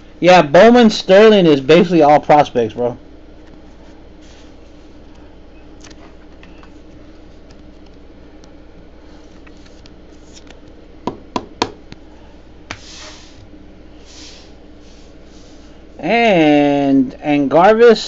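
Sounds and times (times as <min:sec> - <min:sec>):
low room hum: 0:00.0 - 0:18.0
cards sliding rustles: 0:03.4 - 0:10.8, 0:12.7 - 0:15.7.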